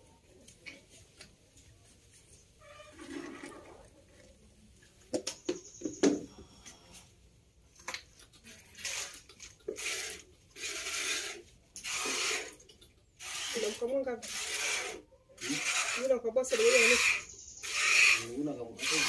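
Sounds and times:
milk squirting into a bucket: 2.6 - 4.4, 7.8 - 16.1.

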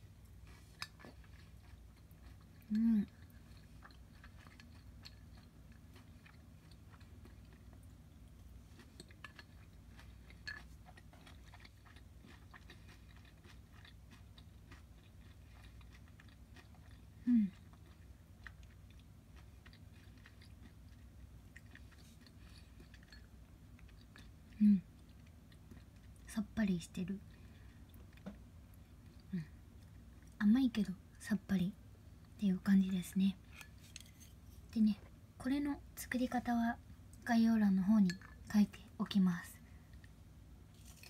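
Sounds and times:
person chewing: 0.2 - 26.3, 33.4 - 34.7, 39.8 - 41.0.

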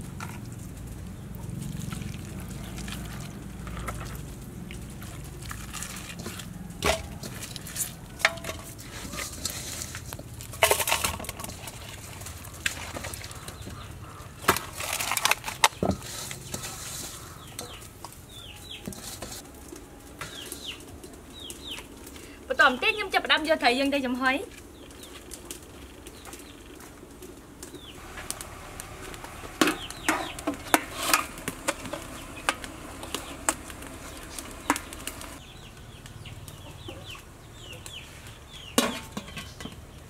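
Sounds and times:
knocks and rustles in steel bowl: 5.0 - 13.8
chickens clucking: 11.5 - 15.0, 15.6 - 19.4, 27.9 - 40.0.

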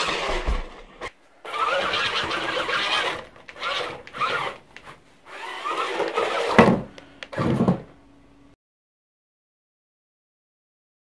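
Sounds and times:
small electric motors whining: 0.0 - 7.6.

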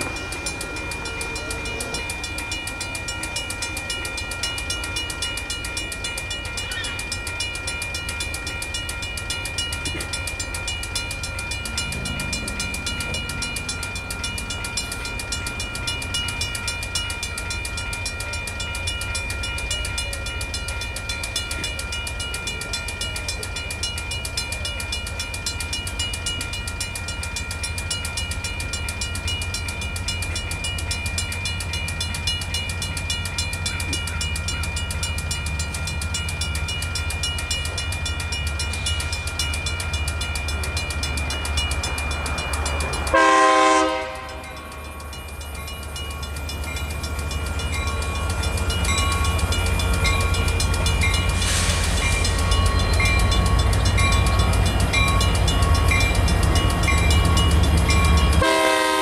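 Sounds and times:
freight train rumble: 0.0 - 59.0
railroad crossing bells ringing: 0.0 - 59.0.

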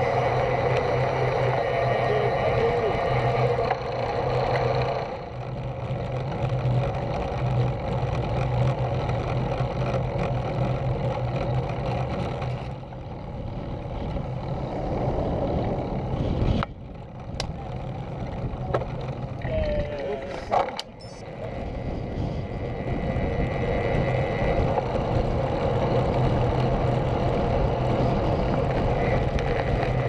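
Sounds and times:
road and tyre noise: 0.0 - 30.0
wind rushing over microphone: 12.0 - 30.0.

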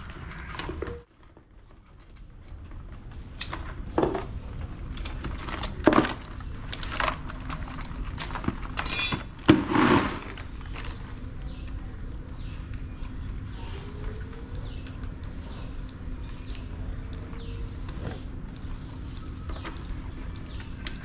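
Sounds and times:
crab shells clicking and scraping: 1.7 - 9.4.

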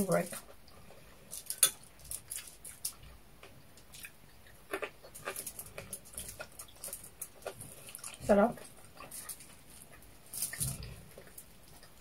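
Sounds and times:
chewing and wet mouth smacks: 3.8 - 12.0.

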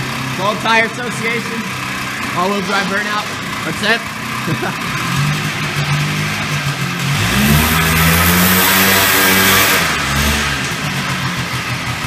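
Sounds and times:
atv engine revving: 0.0 - 12.0.

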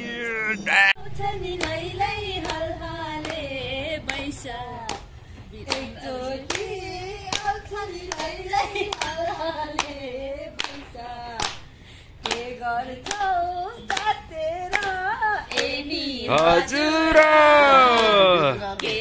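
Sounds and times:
hands clapping a beat: 4.0 - 19.0.

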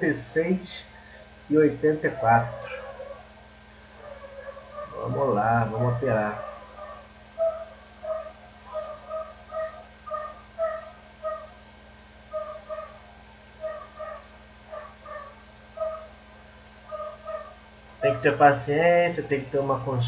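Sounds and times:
high-pitched animal cries: 2.0 - 3.3, 4.0 - 11.6, 12.3 - 16.2, 16.9 - 17.6.

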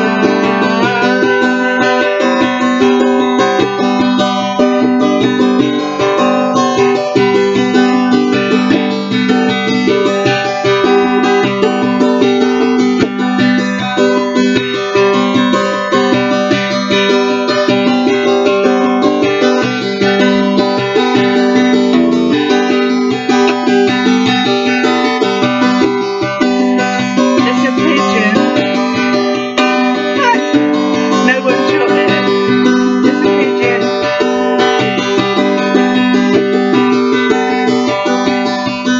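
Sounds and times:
classical guitar strummed: 0.0 - 38.9.

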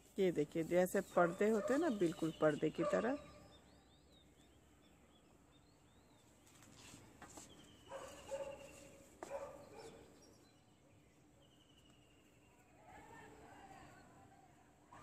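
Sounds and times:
birds chirping: 0.7 - 6.8, 7.4 - 13.1.

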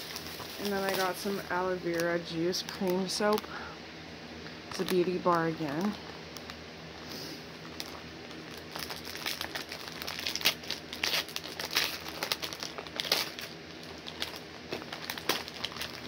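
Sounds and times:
soap wrapper crinkling: 7.6 - 16.0.

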